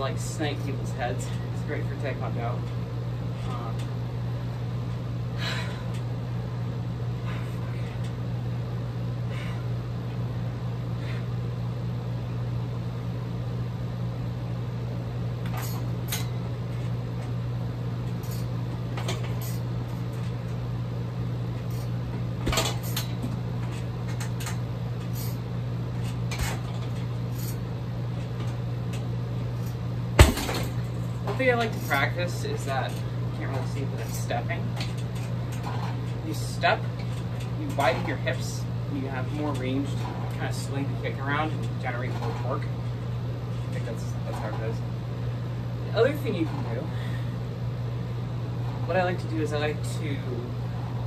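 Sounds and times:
low room hum: 0:00.0 - 0:51.0
loud thump: 0:30.2 - 0:30.7.

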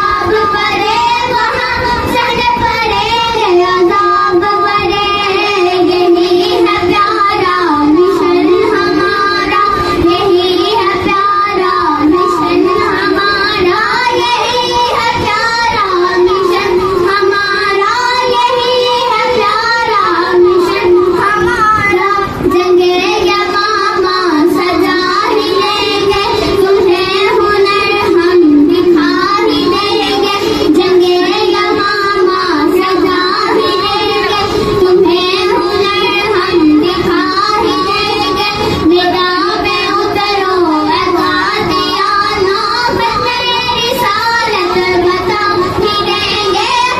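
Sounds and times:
girls singing devotional song: 0:00.0 - 0:46.9.

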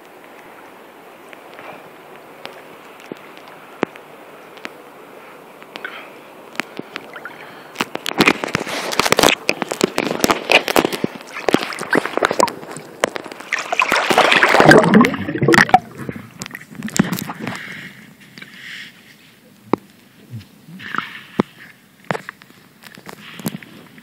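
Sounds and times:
sharp crackles and knocks: 0:01.3 - 0:04.8, 0:05.6 - 0:07.1, 0:07.7 - 0:24.0
water splashing and gurgling: 0:05.7 - 0:18.5, 0:19.5 - 0:24.0.

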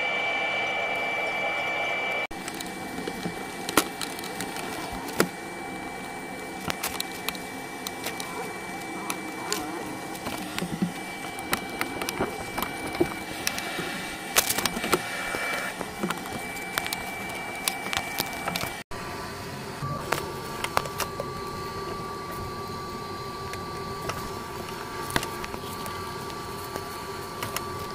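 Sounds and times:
background hum: 0:00.0 - 0:27.9
faint high whine: 0:00.0 - 0:27.9
plastic air filter handled: 0:02.4 - 0:05.4, 0:06.0 - 0:18.8, 0:23.4 - 0:27.9.

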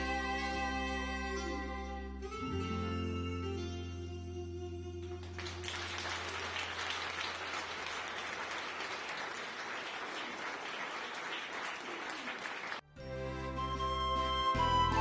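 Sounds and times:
audience applauding: 0:05.2 - 0:12.9.

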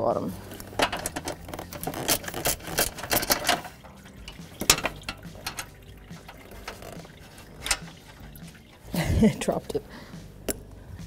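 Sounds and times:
socket ratchet clicking: 0:00.5 - 0:08.2.

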